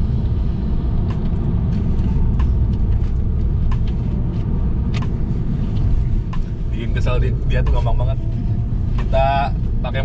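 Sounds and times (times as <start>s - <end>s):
car cabin road rumble: 0.0s - 10.0s.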